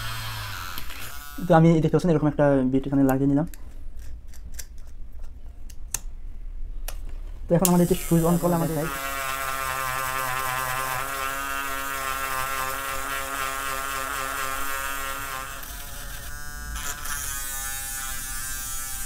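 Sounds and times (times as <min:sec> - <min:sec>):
mini rotary drill buzzing: 0:00.0 - 0:01.6, 0:07.8 - 0:19.0.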